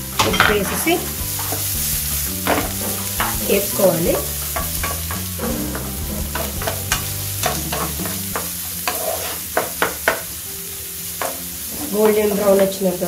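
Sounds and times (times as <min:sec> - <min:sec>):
onions sizzling in a frying pan: 0:00.0 - 0:13.0
spatula scraping a pan: 0:00.2 - 0:10.3.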